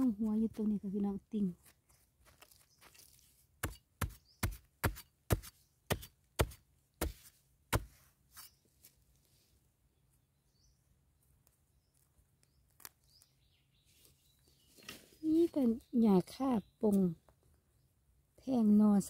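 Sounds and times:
metal blade chopping into dry soil: 2.4 - 8.6.

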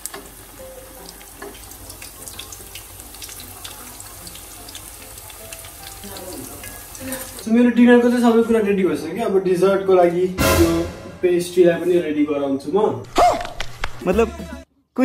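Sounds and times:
food deep-frying in hot oil: 0.0 - 7.5.

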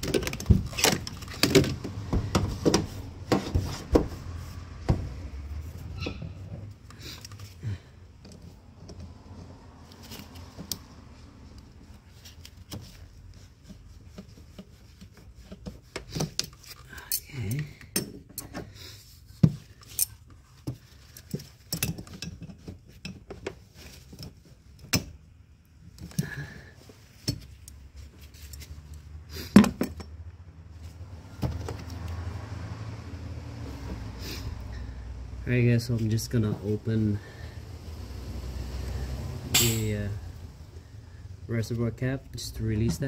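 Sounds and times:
metal tool clinking on engine parts: 16.4 - 18.7, 21.1 - 23.2, 39.5 - 40.1.

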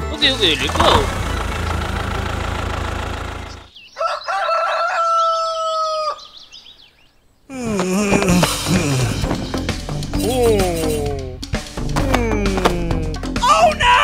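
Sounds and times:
rooster crowing: 3.9 - 6.4.

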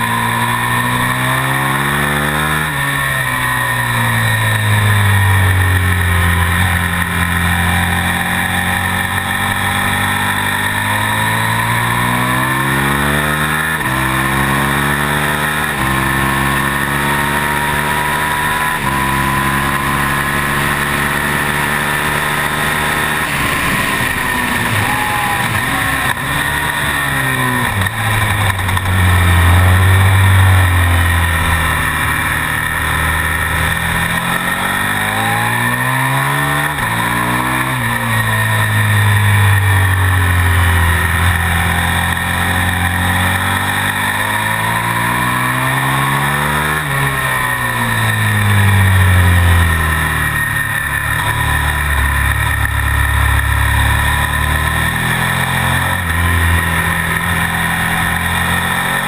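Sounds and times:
motorcycle engine upshifting: 0.0 - 59.0.

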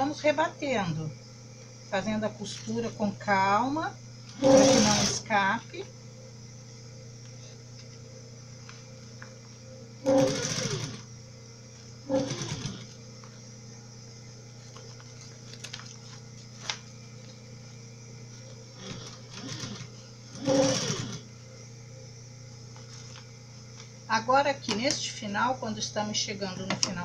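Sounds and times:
electric sewing machine stitching: 4.3 - 5.3, 10.0 - 11.1, 12.1 - 13.0, 18.8 - 21.3.

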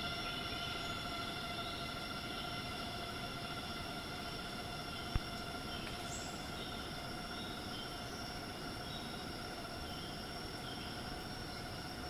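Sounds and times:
cicadas droning: 0.0 - 12.0.

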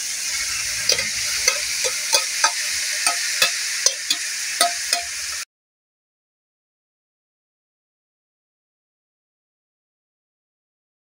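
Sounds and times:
food sizzling in hot oil: 0.0 - 5.5
metal spoon knocking ceramic bowl: 0.9 - 5.1.

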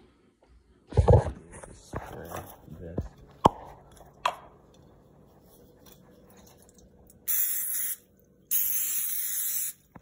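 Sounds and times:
aerosol spray hissing: 7.3 - 9.8.

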